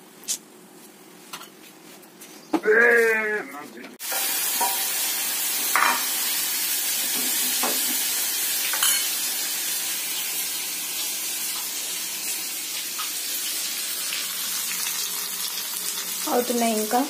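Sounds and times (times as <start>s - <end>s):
fish sizzling in hot oil: 4.0s - 17.0s.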